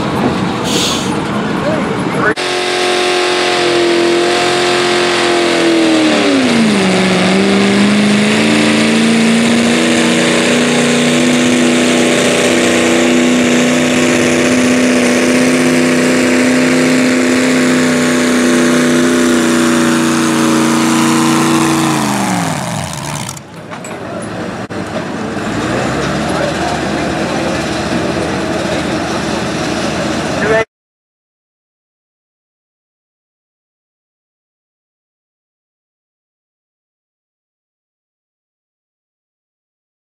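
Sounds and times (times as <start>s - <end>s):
truck engine at full throttle: 0.0s - 30.6s.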